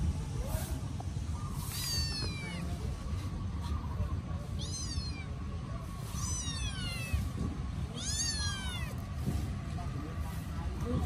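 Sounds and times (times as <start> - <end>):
kittens meowing: 1.6 - 2.9, 4.4 - 5.5, 6.1 - 9.0.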